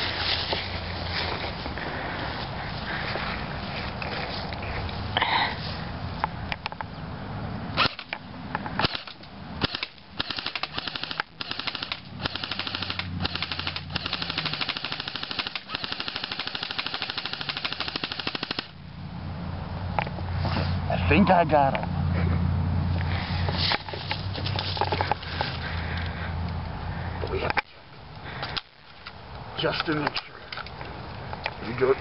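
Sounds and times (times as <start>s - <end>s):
airsoft rifle firing: 7.8s - 8.1s, 8.8s - 18.8s.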